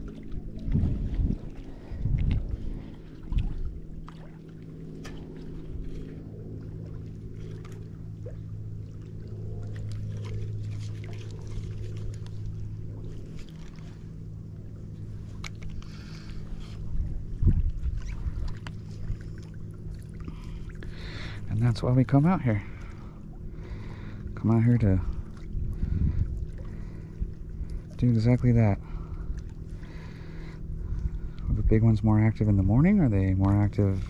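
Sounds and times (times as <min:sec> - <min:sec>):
distant motorboat engine hum: 0:00.0 - 0:34.0
fishing reel clicks and rustles: 0:09.7 - 0:14.2, 0:15.0 - 0:16.9.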